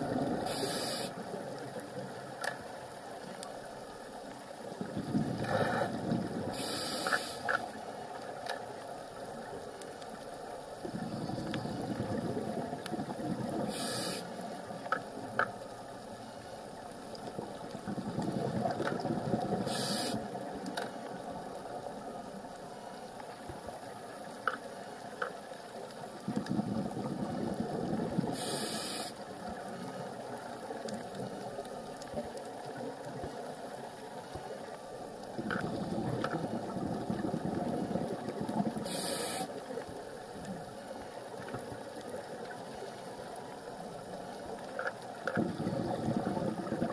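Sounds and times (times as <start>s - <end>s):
exhaled air bubbling: 0.0s - 1.1s, 4.7s - 7.0s, 10.8s - 14.2s, 17.3s - 20.5s, 26.1s - 31.4s, 35.2s - 40.2s, 44.0s - 46.9s
regulator inhale hiss: 0.4s - 1.4s, 6.5s - 7.6s, 13.6s - 14.5s, 19.6s - 20.4s, 28.3s - 29.3s, 38.8s - 39.8s
faint clicks: 0.5s - 3.6s, 6.6s - 26.6s, 28.7s - 36.5s, 37.6s - 46.9s.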